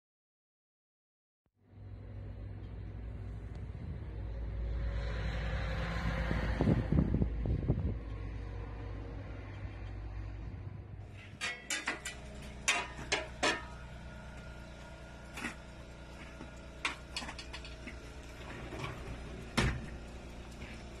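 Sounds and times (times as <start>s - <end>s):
steady low hum: 6.6s - 21.0s.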